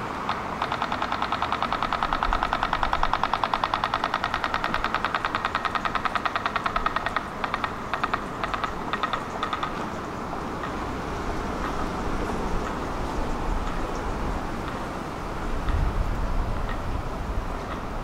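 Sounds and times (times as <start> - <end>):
rapid sharp ticking: 0.2 - 10.9.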